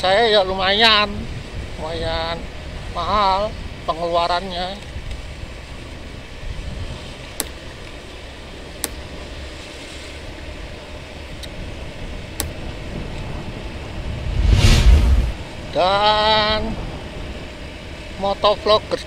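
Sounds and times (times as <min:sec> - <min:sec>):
scooter engine and wind rumble: 0:00.0 - 0:14.4, 0:15.3 - 0:19.0.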